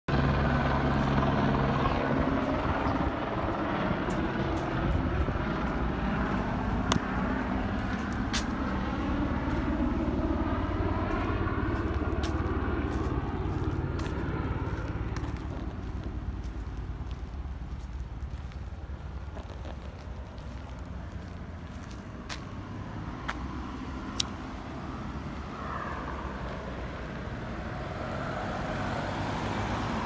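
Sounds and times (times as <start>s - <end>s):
helicopter rotor drone: 0.1s - 30.0s
sharp clicks: 24.2s - 24.4s.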